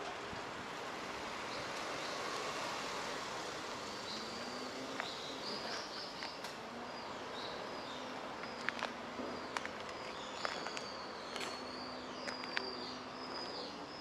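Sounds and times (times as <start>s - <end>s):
steady background hiss: 0.0s - 14.0s
small birds chirping: 3.9s - 14.0s
footsteps on pavement: 8.4s - 13.8s.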